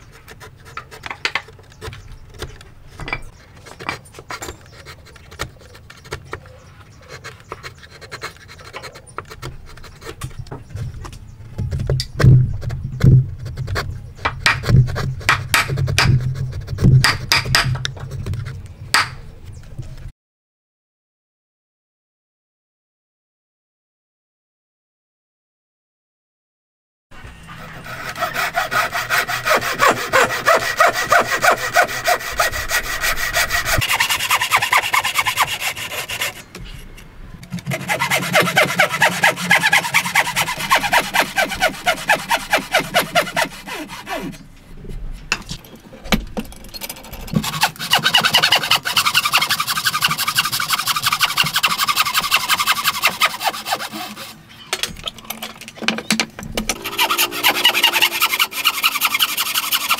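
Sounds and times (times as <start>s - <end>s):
hand saw cutting wood: 27.5s - 36.5s, 37.5s - 44.4s, 47.0s - 54.4s, 56.7s - 59.9s.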